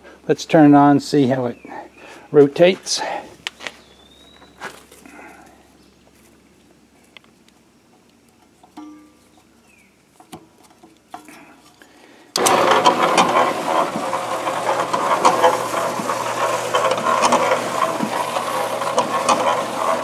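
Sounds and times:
cement mixer motor hum: 12.3s - 20.0s
drum clattering clicks: 12.4s - 20.0s.

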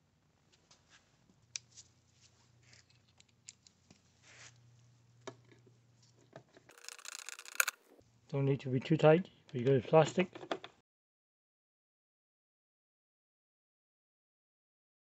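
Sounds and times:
screwdriver clicks and scrapes: 6.7s - 7.8s.

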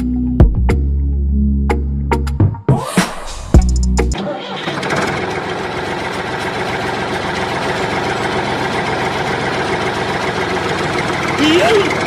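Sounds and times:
tractor engine idling: 4.1s - 12.0s.

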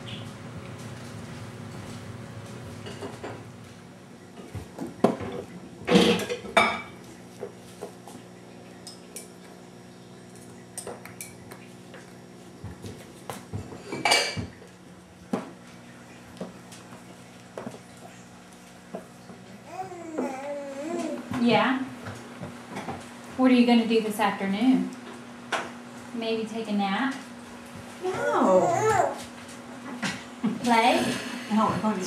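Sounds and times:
dishes and cutlery clattering: 5.2s - 7.0s.

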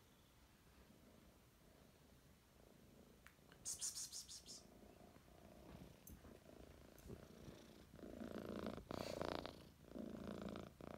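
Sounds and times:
cat purring: 0.8s - 3.3s, 4.6s - 10.9s.

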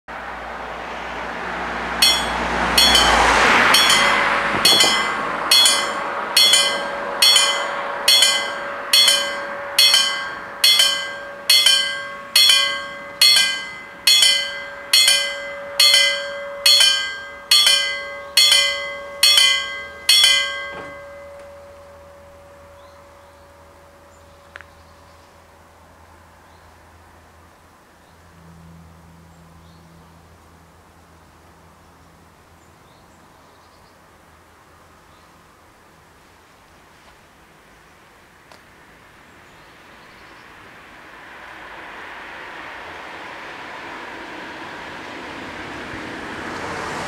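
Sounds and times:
level-crossing warning bells: 2.0s - 25.7s.

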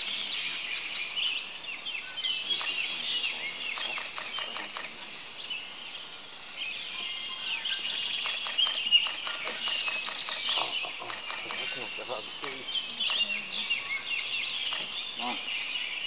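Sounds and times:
birds singing and calling: 0.0s - 16.0s
rapid high bird trills: 2.4s - 5.8s, 7.2s - 16.0s.

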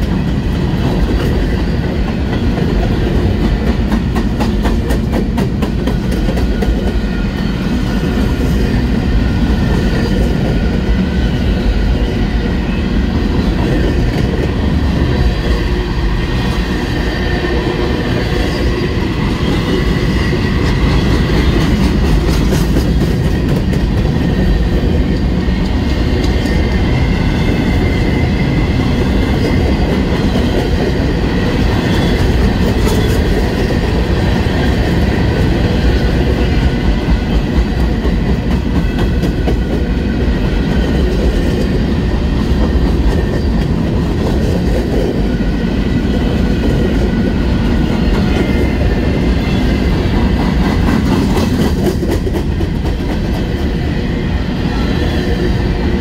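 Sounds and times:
clicks of train wheels: 0.0s - 8.5s, 18.1s - 28.1s, 29.0s - 39.9s, 46.5s - 53.8s
train wheels rumbling on rail: 0.0s - 56.0s.

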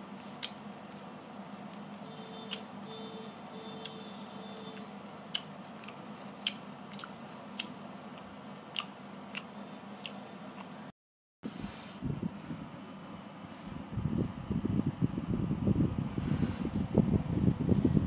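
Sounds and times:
chewing with crunchy clicks: 3.8s - 10.8s.

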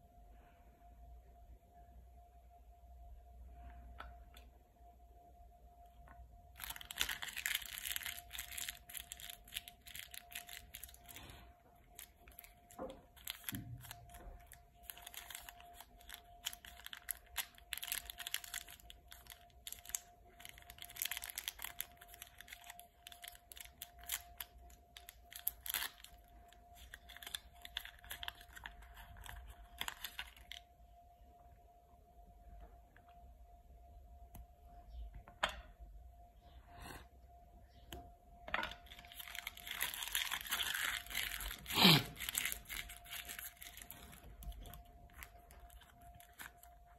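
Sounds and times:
plastic wrapper tearing and crinkling: 6.5s - 30.7s, 38.7s - 46.9s.

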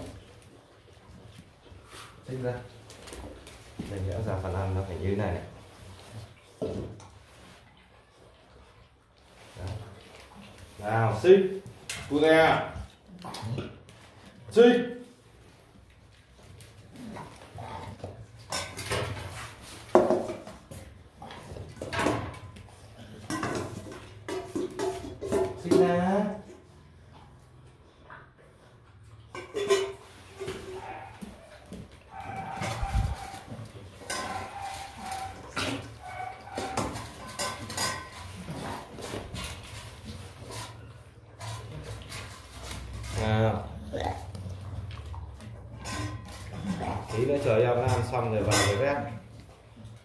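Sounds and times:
metal dog bowls clanking: 17.3s - 26.6s, 29.2s - 50.0s
metal spoon scraping in a bowl: 32.2s - 43.3s, 45.8s - 49.1s.

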